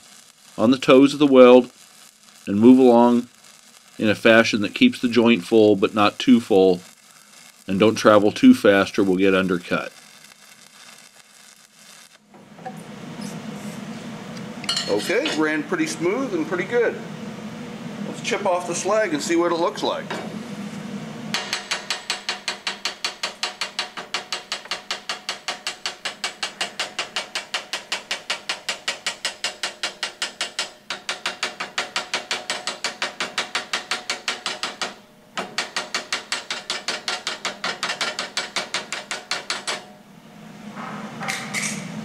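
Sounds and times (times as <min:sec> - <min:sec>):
chipping hammer on metal: 0:21.3 - 0:39.9
wire brush scrubbing steel: 0:35.4 - 0:39.8.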